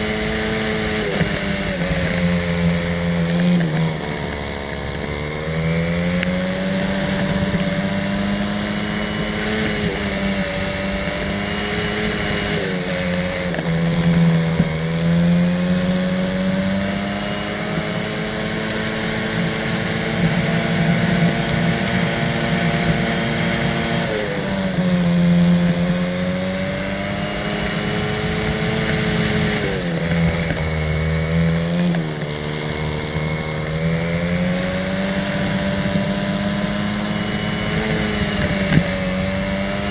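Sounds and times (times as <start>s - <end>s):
go-kart engine: 0.0s - 39.9s.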